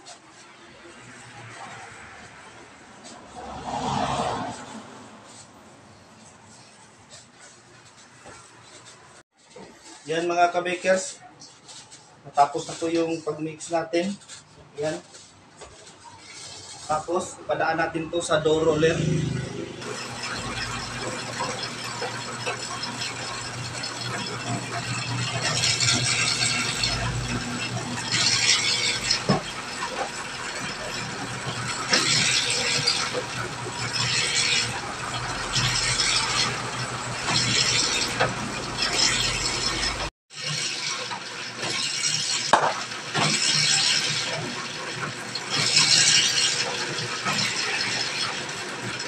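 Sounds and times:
dough roller machine running: 14.2 - 17.0, 19.8 - 49.0
motor hum: 19.1 - 40.1
clattering gear noise: 19.1 - 49.0.

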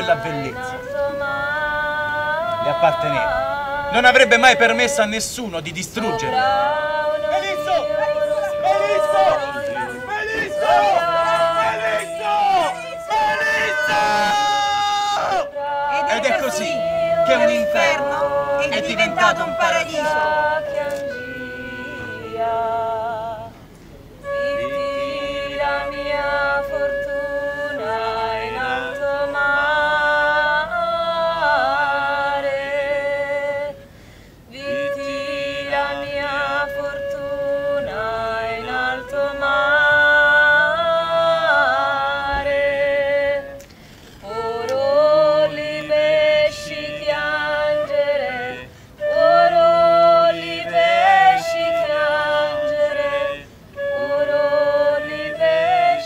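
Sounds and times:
voice singing wavering notes: 6.0 - 23.4.

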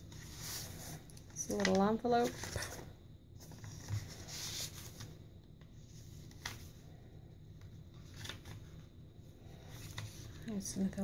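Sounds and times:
paper pages rustling: 0.0 - 5.2, 6.0 - 6.8, 7.6 - 8.9, 9.6 - 10.6.

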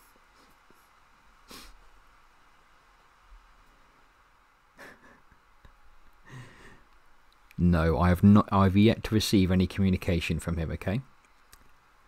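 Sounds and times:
faint breaths: 6.2 - 7.0.

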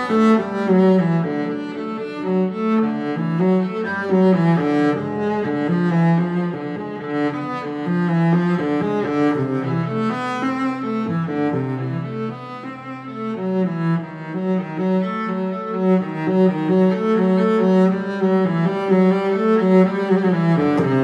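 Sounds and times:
instrumental music with low notes: 0.0 - 21.0.

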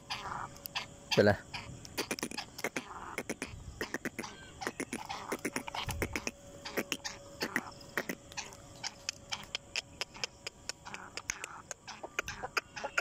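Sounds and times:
sharp hand clicks at a cage: 8.3 - 12.4.

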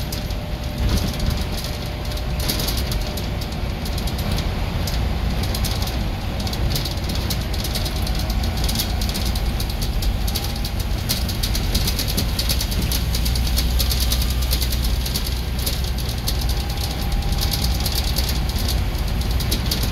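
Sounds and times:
bus engine drone: 0.0 - 19.9.

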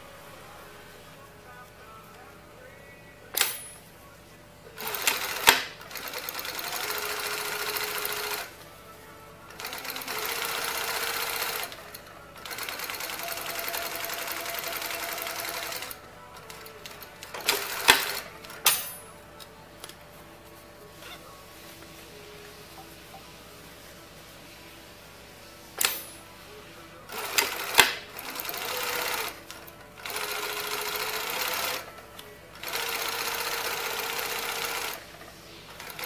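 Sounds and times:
sewing machine stitching: 4.8 - 8.5, 9.5 - 18.8, 27.1 - 32.0, 32.6 - 36.0.

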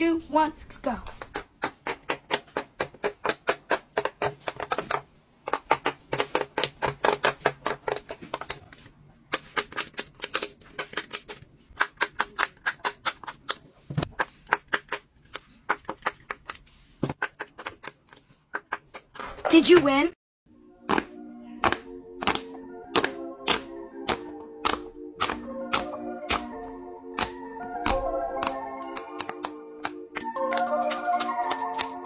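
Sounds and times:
fidget toy popping: 1.0 - 8.6, 20.9 - 26.5.

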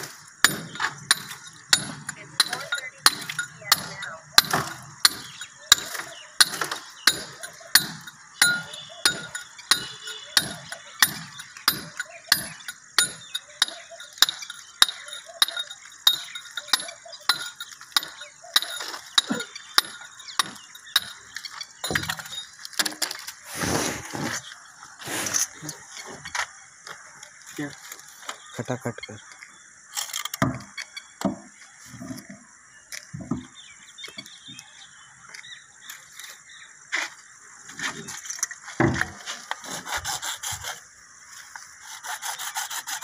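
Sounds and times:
scraping noise: 23.4 - 26.3.

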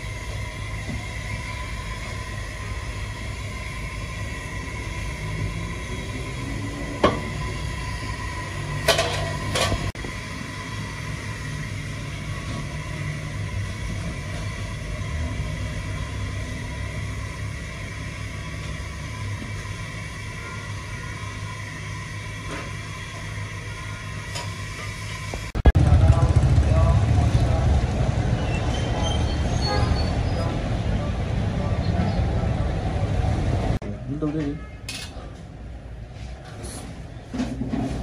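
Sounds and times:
steady low rumble: 25.3 - 28.3.

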